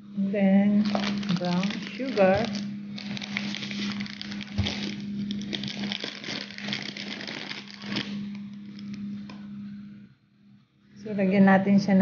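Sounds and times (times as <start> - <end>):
steady low hum: 0.0 - 12.0
plastic bag rustling: 0.7 - 9.4.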